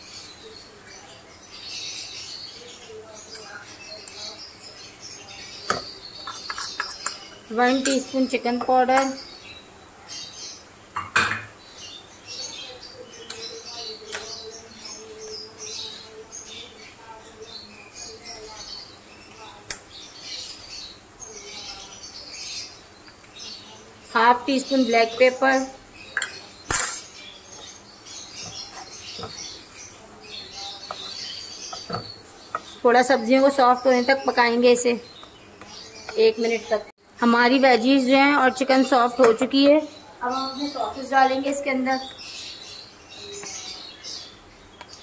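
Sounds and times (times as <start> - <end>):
birds chirping: 0.0 - 45.0
spatula stirring food in a pan: 5.4 - 9.6, 26.1 - 33.8.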